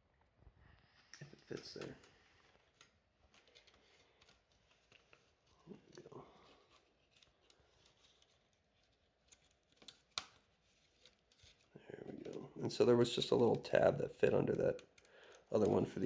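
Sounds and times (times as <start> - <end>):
small clicks and taps: 1.1 - 12.4, 14.5 - 16.0.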